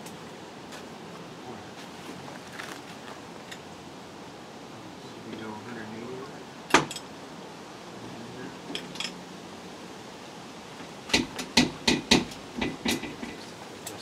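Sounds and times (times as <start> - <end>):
knocks on metal panel: 11.1 - 13.4.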